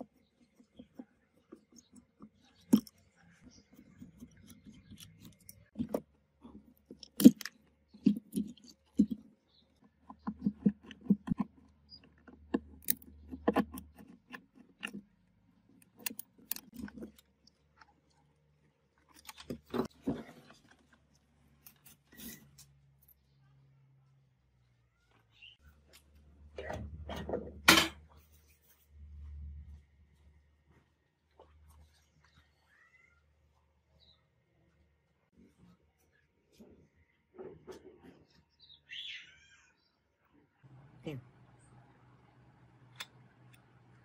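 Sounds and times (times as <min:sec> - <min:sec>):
screwdriver clicks and creaks: 0:10.4 - 0:15.1, 0:15.7 - 0:17.6.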